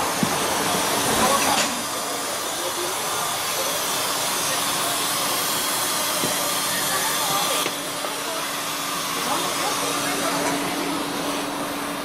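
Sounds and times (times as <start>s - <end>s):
bus engine low hum: 9.1s - 12.0s.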